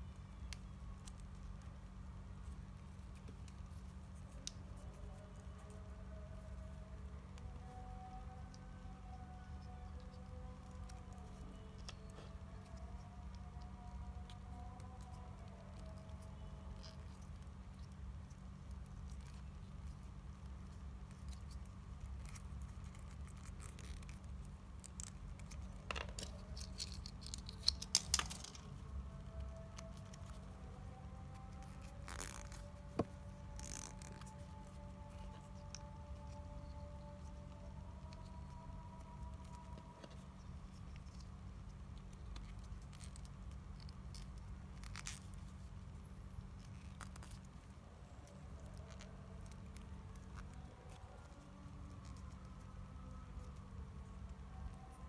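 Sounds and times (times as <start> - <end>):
steady low hum: 0.0 - 55.0
plastic toy parts clicking: 25.8 - 28.7.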